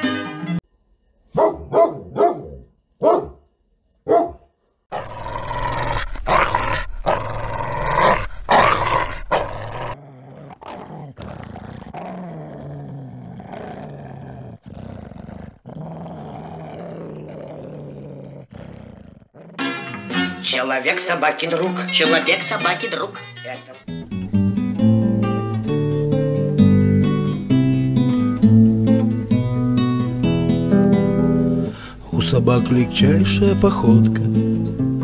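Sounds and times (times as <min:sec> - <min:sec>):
dog barking and snarling: 0:01.3 - 0:03.4, 0:04.0 - 0:20.3
dog growling: 0:04.9 - 0:20.3.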